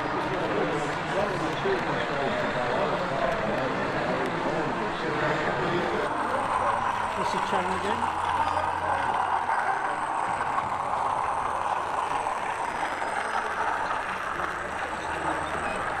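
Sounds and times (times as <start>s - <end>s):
exhibition hall din: 0.0s - 16.0s
model train running on track: 0.0s - 16.0s.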